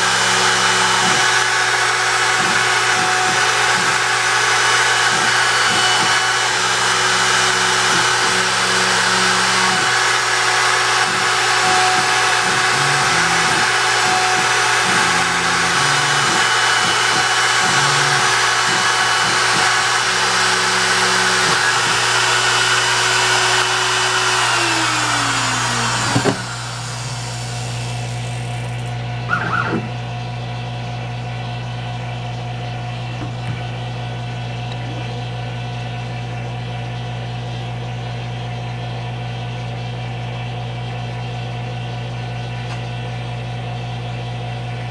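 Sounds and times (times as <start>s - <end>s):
router spindle cutting wood: 0.0s - 30.0s
stepper motors whining: 0.0s - 30.0s.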